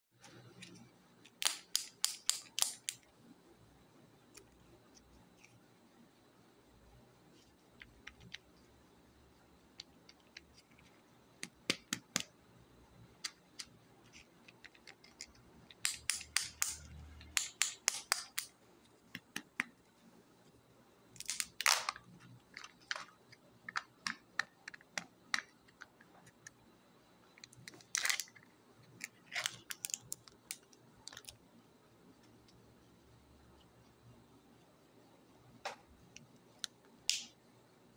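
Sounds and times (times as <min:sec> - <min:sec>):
plastic wrapper clicks and crackles: 0:21.2 - 0:25.9, 0:29.0 - 0:31.4.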